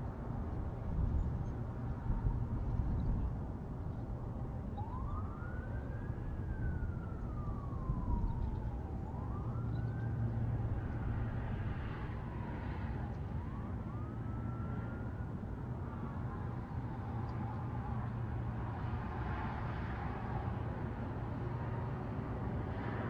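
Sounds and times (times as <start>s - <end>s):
siren wailing: 4.8s - 15.4s.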